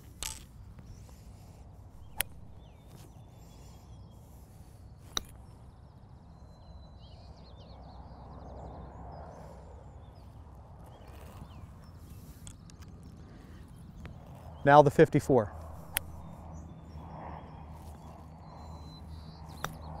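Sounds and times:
birds singing: 0:00.0 - 0:20.0
golf club striking ball: 0:02.0 - 0:02.6, 0:15.7 - 0:16.3.

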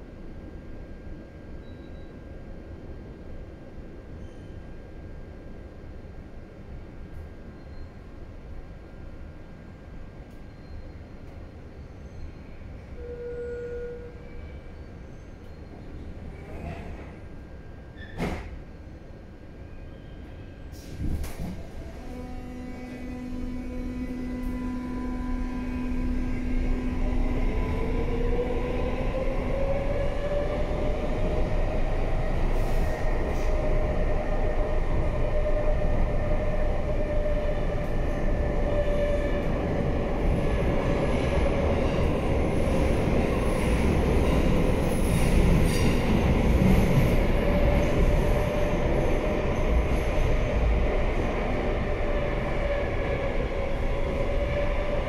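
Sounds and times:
wheels rumbling on rail: 0:20.7 - 0:55.0.

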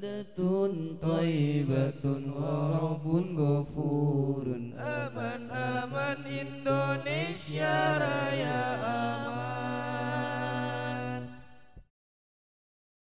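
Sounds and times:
men chanting a capella: 0:00.0 - 0:11.8.

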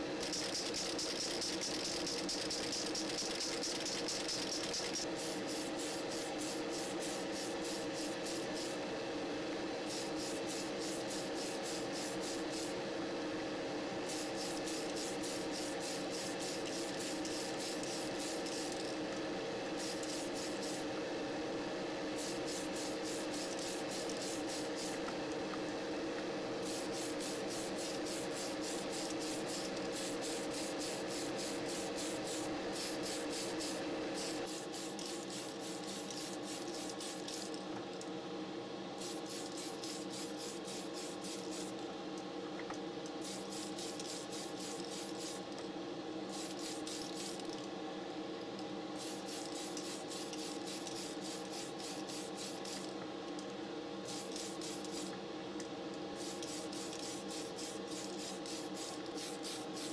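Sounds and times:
spray paint hissing: 0:00.2 - 0:08.7, 0:09.9 - 0:12.7, 0:14.1 - 0:18.9, 0:19.8 - 0:20.8, 0:22.2 - 0:25.0, 0:26.6 - 0:37.6, 0:39.0 - 0:41.7, 0:43.2 - 0:45.4, 0:46.3 - 0:47.4, 0:49.0 - 0:52.8, 0:54.1 - 0:55.1, 0:56.2 - 0:59.9.

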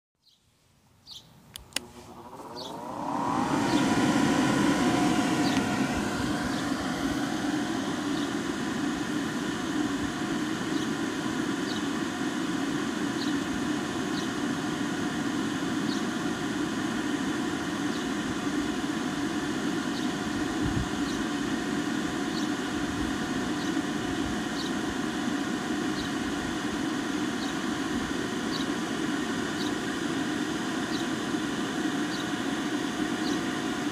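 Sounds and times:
blower motor whine: 0:01.4 - 0:33.9
blower switch click: 0:01.5 - 0:06.7.

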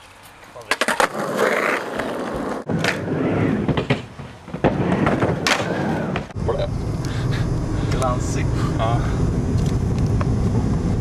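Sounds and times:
skateboard clacking on ground: 0:00.0 - 0:03.0
skateboard wheels rolling on concrete: 0:00.0 - 0:11.0.

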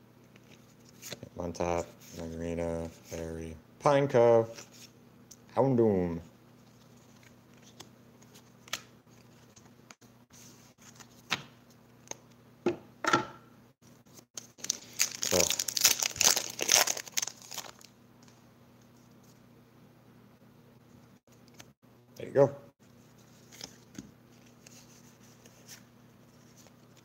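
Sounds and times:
foil wrapper crinkling and tearing: 0:14.4 - 0:17.9.

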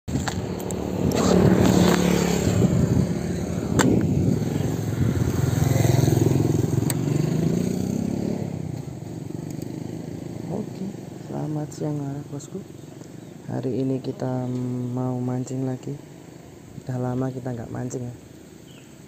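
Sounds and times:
motorcycle engines passing: 0:00.1 - 0:19.0
sharp clicks: 0:06.8 - 0:07.1, 0:08.8 - 0:09.8.

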